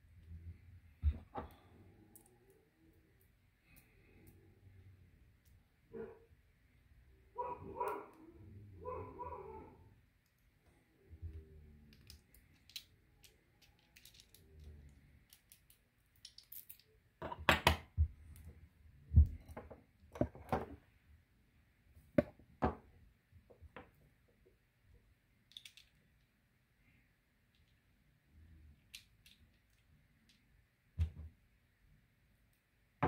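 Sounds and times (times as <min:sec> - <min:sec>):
metal lock parts clicking: 0:11.9 - 0:14.4.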